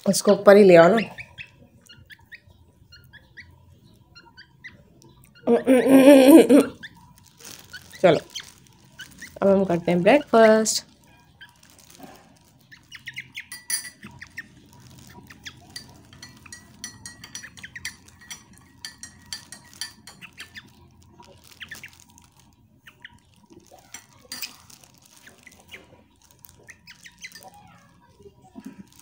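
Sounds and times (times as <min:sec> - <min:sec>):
teaspoon clinking against glass: 0:13.5 - 0:14.1, 0:15.7 - 0:20.7, 0:23.9 - 0:24.7.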